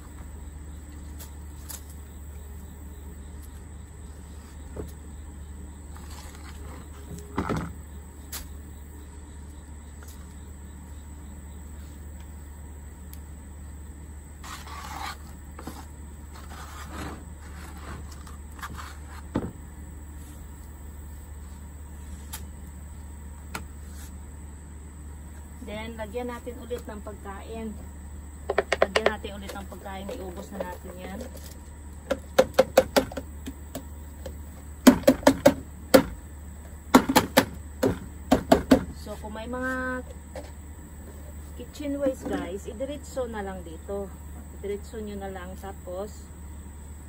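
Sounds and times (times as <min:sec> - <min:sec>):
steady low hum: 0:00.0 - 0:47.0
plastic container knocking on bucket: 0:28.5 - 0:29.2.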